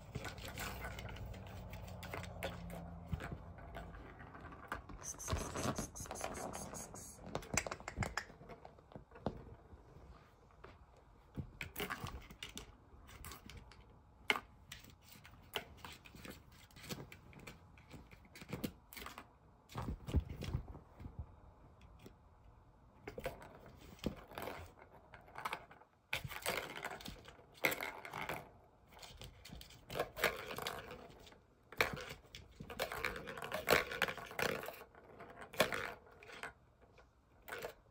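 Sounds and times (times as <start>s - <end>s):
ball rolling around plastic track: 0.0s - 9.2s, 23.2s - 37.9s.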